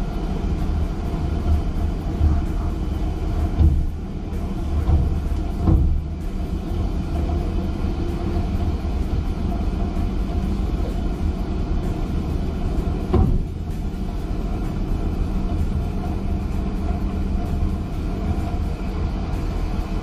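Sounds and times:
ship engine droning: 0.0 - 20.0.

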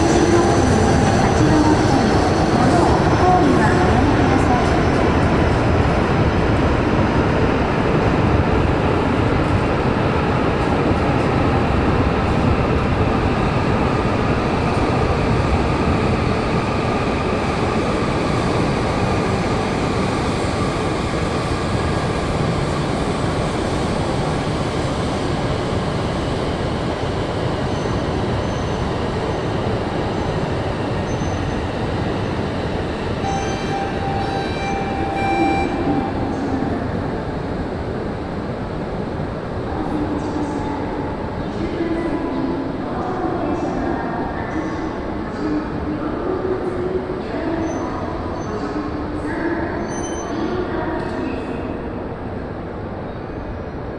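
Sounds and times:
train rumbling: 0.0 - 53.9.

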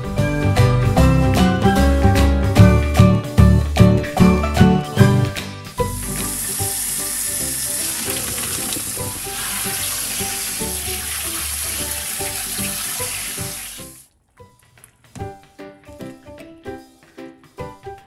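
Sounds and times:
water pouring into sink: 5.8 - 14.1.

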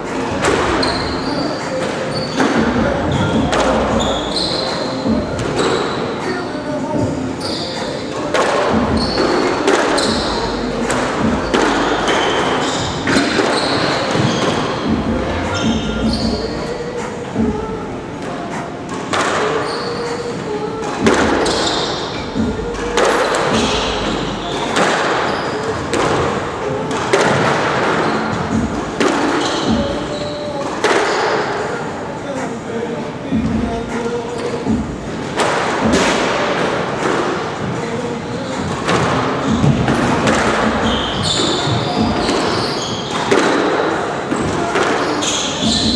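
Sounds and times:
shoes squeaking on court floor: 0.0 - 17.6, 18.2 - 32.7, 33.3 - 45.9.

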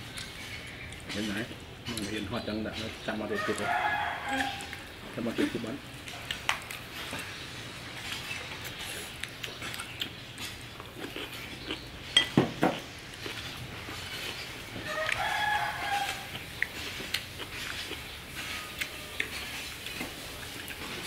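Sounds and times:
spoon and dishes clinking: 12.1 - 12.8
sharp knocks on dishes: 12.2 - 12.8.

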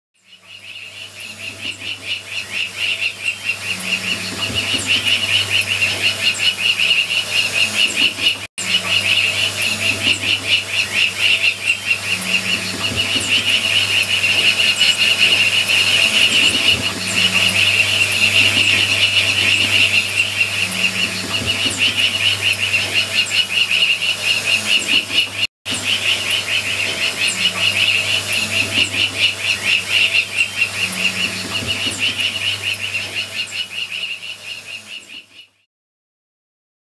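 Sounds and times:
bird chirps: 0.2 - 35.6
low steady hum: 0.6 - 7.0, 8.6 - 24.6, 25.7 - 33.6
fast repeating animal calls: 0.6 - 34.8.

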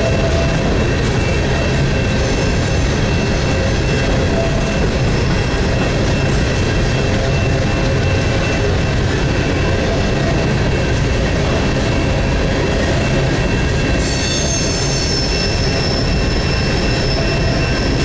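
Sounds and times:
steel wheels rumbling on rail: 0.0 - 18.0.

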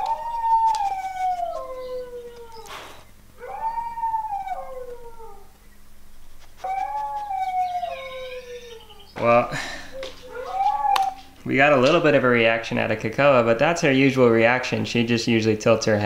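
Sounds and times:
recorded dog howls: 0.0 - 2.8, 3.4 - 5.6, 6.6 - 12.0.

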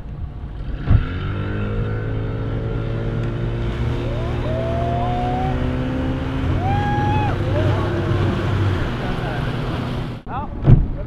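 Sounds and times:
boat engine running under load: 0.3 - 10.2
drawn-out high call: 3.8 - 7.7.

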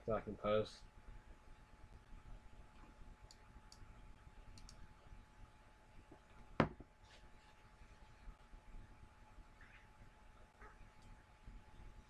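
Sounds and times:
computer mouse clicking: 4.5 - 4.8.

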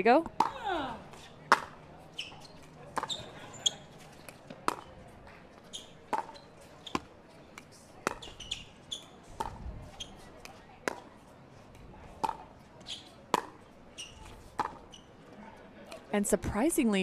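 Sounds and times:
ball bouncing on court: 0.0 - 0.7, 1.5 - 5.0, 5.8 - 7.1, 8.0 - 11.1, 12.2 - 15.1
sneaker squeaks: 0.4 - 7.4, 8.0 - 11.1, 12.2 - 15.4
paddles hitting plastic ball: 4.2 - 4.9, 7.0 - 8.4, 12.2 - 12.5.

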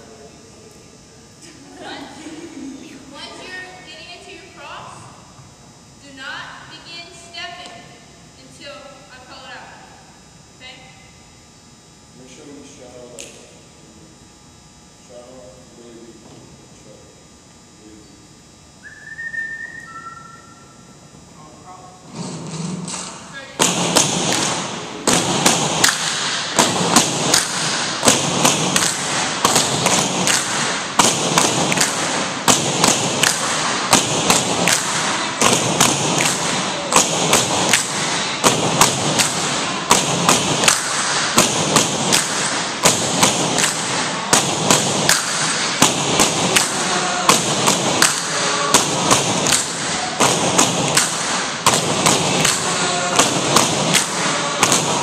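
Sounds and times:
poles clapped together: 22.8 - 55.0.

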